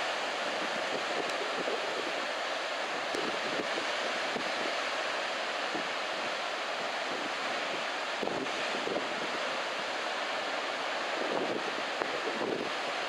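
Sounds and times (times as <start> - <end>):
surf breaking on beach: 0.0 - 13.0
wind buffeting microphone: 0.4 - 2.3, 2.9 - 4.7, 7.0 - 9.4, 11.1 - 12.8.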